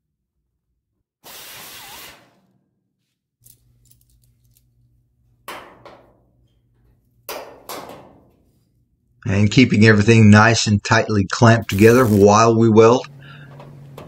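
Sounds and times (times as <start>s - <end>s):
drill whirring: 1.2s - 2.3s.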